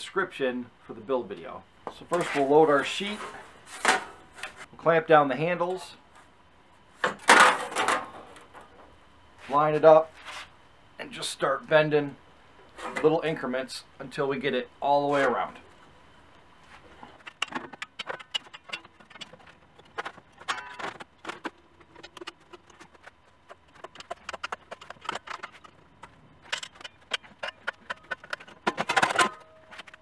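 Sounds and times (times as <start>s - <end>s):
metallic clanks and clicks: 23.7s - 30.0s.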